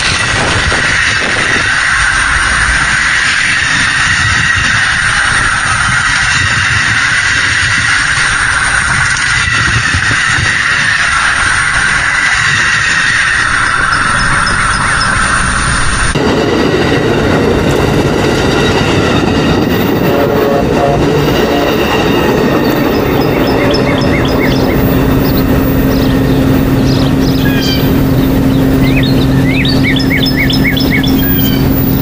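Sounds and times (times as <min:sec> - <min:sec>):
train running on rails: 0:00.0 - 0:32.0
birds chirping trills: 0:12.0 - 0:15.8, 0:20.1 - 0:32.0.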